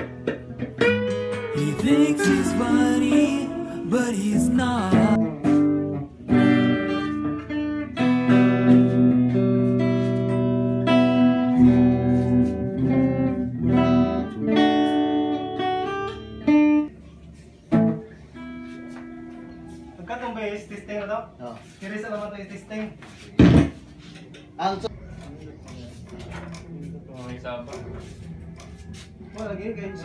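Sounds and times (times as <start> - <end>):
clean electric guitar: 0.0 - 19.8.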